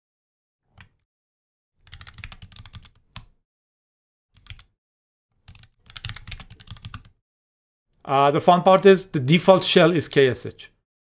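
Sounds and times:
keyboard typing: 1.8 - 3.3, 4.4 - 4.7, 5.4 - 7.2.

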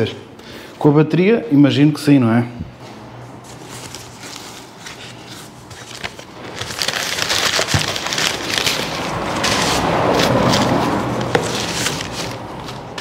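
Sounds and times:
packing material rustling: 3.4 - 13.0.

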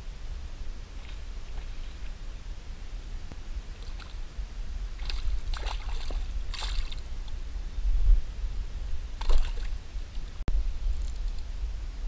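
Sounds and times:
steady low rumble: 0.0 - 12.0
water splashing beside boat: 3.7 - 4.2, 4.9 - 7.1, 9.2 - 10.2.

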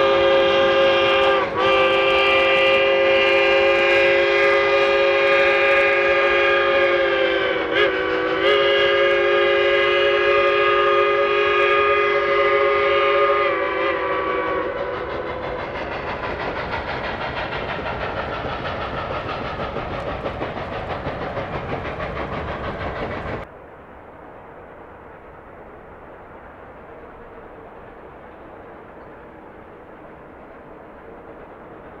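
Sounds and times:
steam locomotive whistle: 0.0 - 20.1
train running noise: 0.0 - 32.0.

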